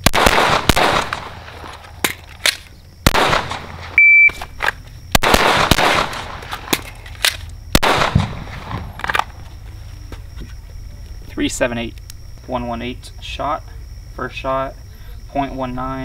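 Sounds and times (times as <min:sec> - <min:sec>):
pistol shots: 0:00.0 - 0:03.9, 0:05.1 - 0:09.2
electronic shot timer beep: 0:04.0 - 0:04.4.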